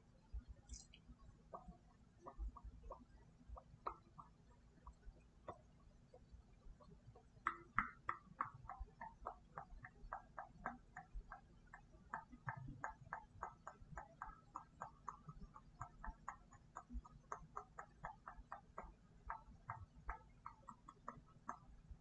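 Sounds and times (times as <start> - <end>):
mouth clicks and pops: 0.4 - 22.0.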